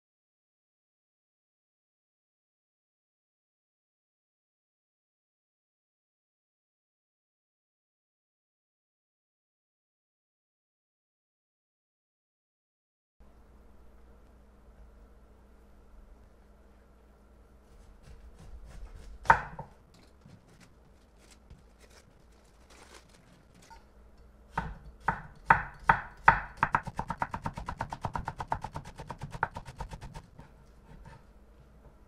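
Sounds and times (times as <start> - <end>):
knife cutting cabbage on board: 17.8 - 22.1, 24.6 - 31.2.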